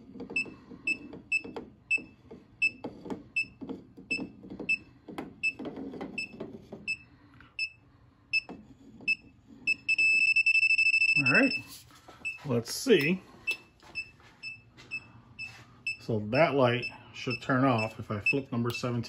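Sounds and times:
short high beeps: 9.7 - 11.7.

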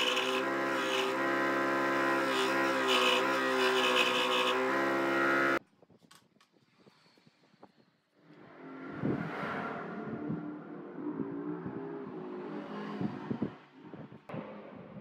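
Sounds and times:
scroll saw cutting wood: 0.0 - 5.6.

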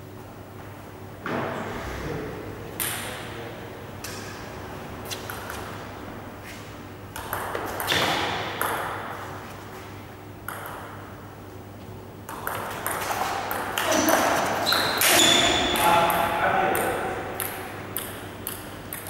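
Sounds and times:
table tennis ball clicking: 7.1 - 8.9, 10.5 - 11.0, 12.3 - 13.9, 16.7 - 19.0.

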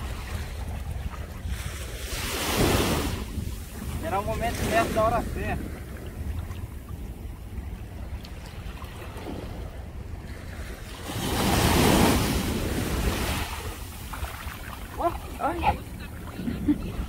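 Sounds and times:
wind rumble on microphone: 0.0 - 17.0
sea wave washing in: 10.7 - 16.1.

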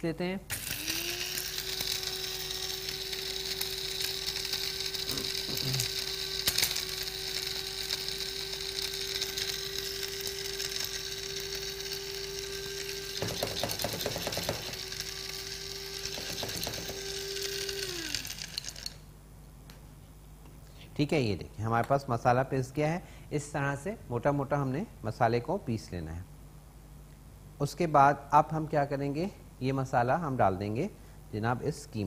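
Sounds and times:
spice grinder motor hum: 0.5 - 19.1
spices rattling: 0.6 - 19.0.

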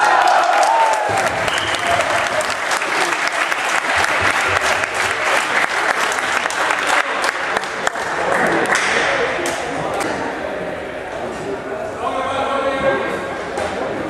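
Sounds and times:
crowd applauding: 0.0 - 9.1.

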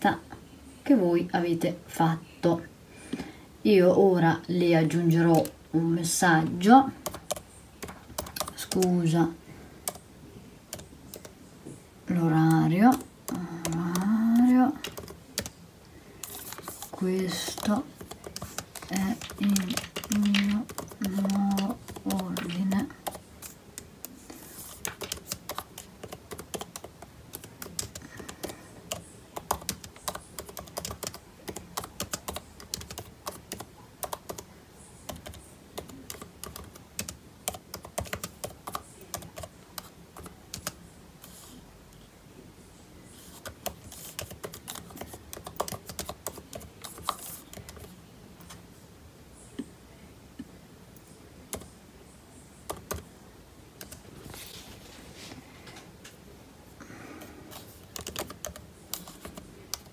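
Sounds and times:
laptop keyboard typing: 4.9 - 5.6, 6.3 - 10.0, 10.7 - 11.4, 12.1 - 15.6, 16.2 - 40.8, 43.2 - 48.6, 51.5 - 51.8, 52.6 - 53.1, 53.8 - 54.0, 56.8 - 59.9.

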